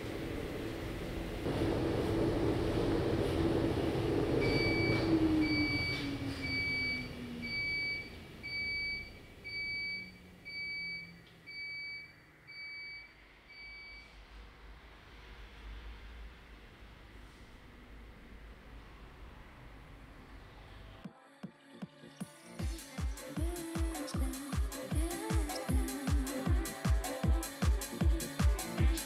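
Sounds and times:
washing machine motor hum: 0.0 - 21.0.

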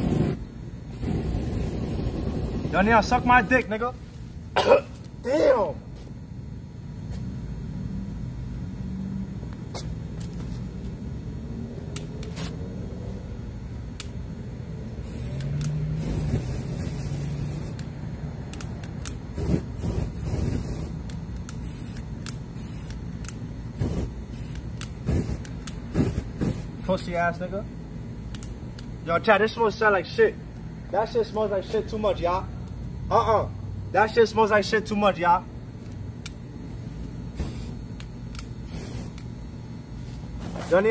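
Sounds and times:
aerosol spray torch hissing: 0.0 - 3.4, 15.0 - 17.9, 19.3 - 23.0, 23.8 - 26.9, 37.3 - 37.8, 38.6 - 39.3
steady low rumble: 0.0 - 4.6
sharp clicks: 18.5 - 19.2.

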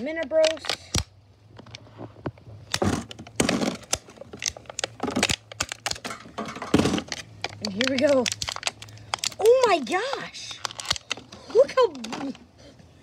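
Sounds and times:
plastic packaging crinkling: 2.7 - 12.4.

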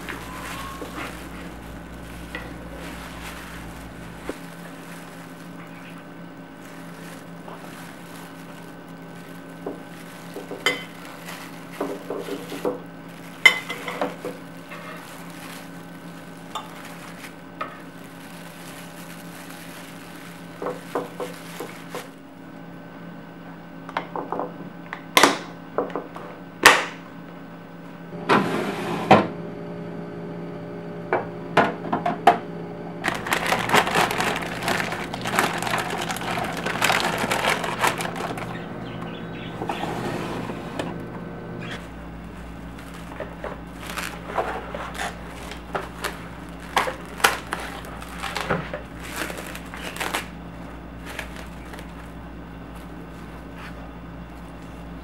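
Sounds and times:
plastic container rustling and scraping: 0.0 - 22.2, 33.0 - 41.0, 41.6 - 50.3, 51.0 - 54.9
low steady hum: 0.0 - 55.0.

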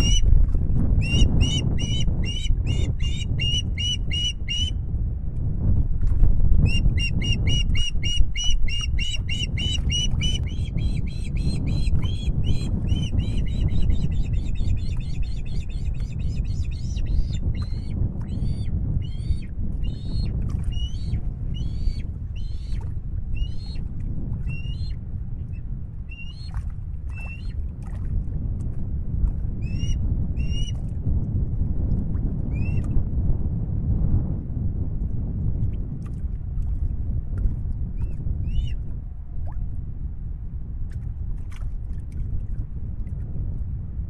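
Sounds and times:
low rumble: 0.0 - 29.6
osprey whistled chirps: 1.0 - 4.8, 6.7 - 22.8, 23.4 - 23.8, 24.5 - 24.9, 26.1 - 26.5.

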